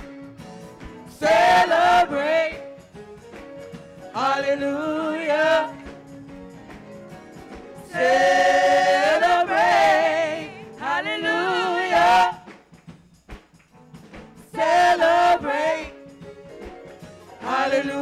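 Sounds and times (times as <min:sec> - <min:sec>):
women singing gospel: 0:01.0 - 0:02.8, 0:04.1 - 0:06.0, 0:07.8 - 0:12.6, 0:14.4 - 0:16.4, 0:17.0 - 0:18.0.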